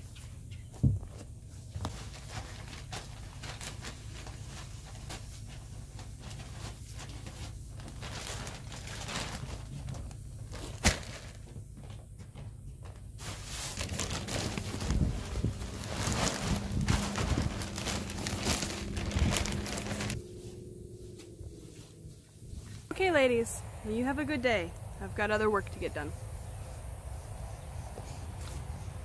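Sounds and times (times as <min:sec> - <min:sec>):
steady low hum: 0:00.0 - 0:29.0
boots scuffing shavings: 0:13.1 - 0:22.9
wood shavings pouring: 0:13.3 - 0:20.2.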